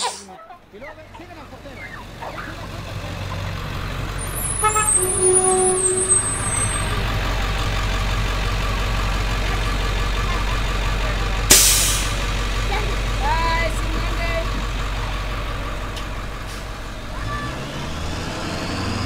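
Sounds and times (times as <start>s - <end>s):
bus engine idling: 0.0s - 19.0s
bus brakes squealing: 4.2s - 7.2s, 11.5s - 12.3s
air hiss: 11.5s - 12.2s.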